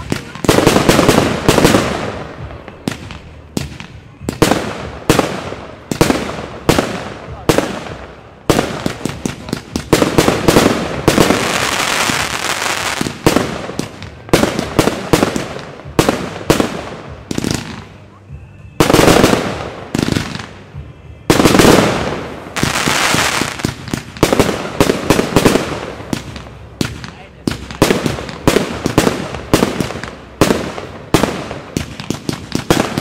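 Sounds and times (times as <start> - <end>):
fireworks bangs echoing: 0.0 - 33.0
fireworks crackling hiss: 0.0 - 33.0.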